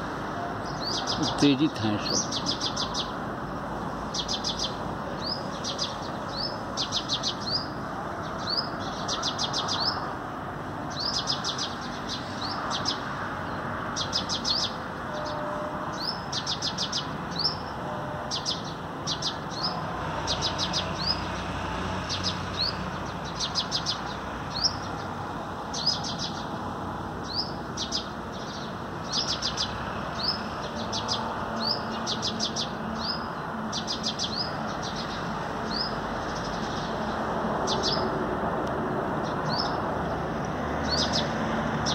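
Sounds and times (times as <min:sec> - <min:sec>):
sparrows chirping: 0:00.0 - 0:38.2, 0:39.2 - 0:41.9
sunbird trilling song: 0:00.6 - 0:03.2, 0:04.1 - 0:10.0, 0:27.2 - 0:36.9, 0:39.3 - 0:39.8, 0:40.8 - 0:41.3.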